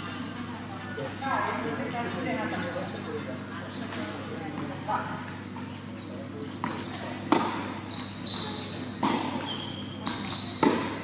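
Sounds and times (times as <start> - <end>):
shoes squeaking on court: 2.4 - 4.6, 5.2 - 11.0
tennis balls struck by rackets: 6.6 - 7.8, 8.9 - 11.0.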